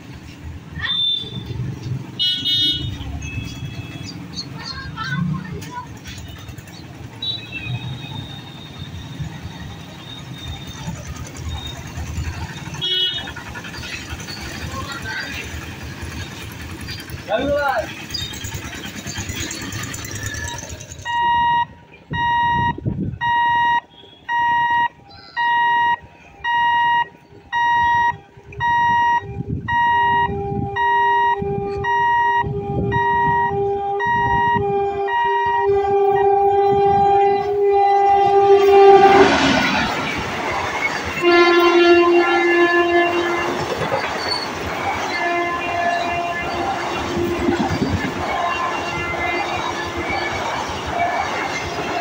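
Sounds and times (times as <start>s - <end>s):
level crossing alarm beeping: 21.0s - 36.5s
train horn: 28.0s - 52.0s
train wheels and air rushing: 38.3s - 41.9s.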